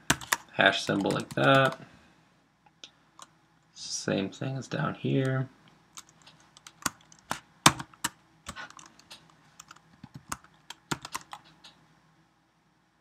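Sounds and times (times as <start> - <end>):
keyboard typing: 0.0 - 1.8, 5.9 - 11.8.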